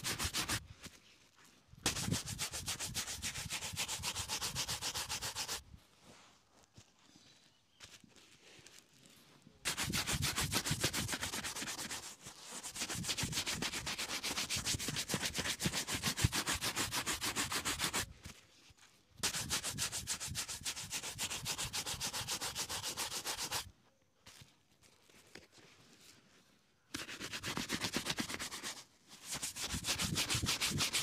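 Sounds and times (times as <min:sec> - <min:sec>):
shoe brush buffing leather: 0:00.0 - 0:00.6, 0:01.9 - 0:05.6, 0:27.3 - 0:31.0.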